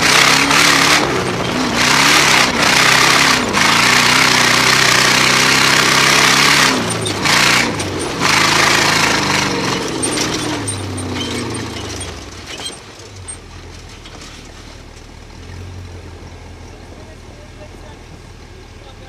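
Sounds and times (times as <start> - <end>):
racing car engine from inside cab: 0.0 - 12.8
rattling: 1.4 - 15.1.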